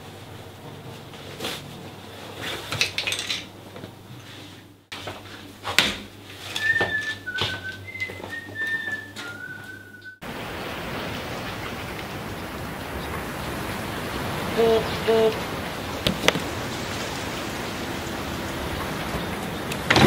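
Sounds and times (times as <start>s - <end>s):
person whistling a tune: 6.5s - 10.2s.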